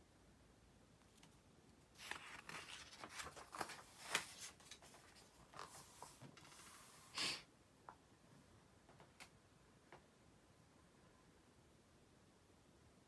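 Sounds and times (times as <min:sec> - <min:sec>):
paper page rustling: 0:01.1 - 0:07.1.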